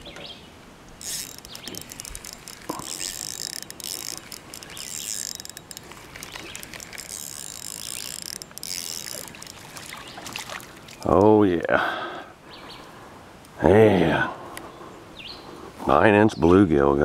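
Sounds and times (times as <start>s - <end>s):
fishing reel whirring and clicking: 1.0s - 10.0s.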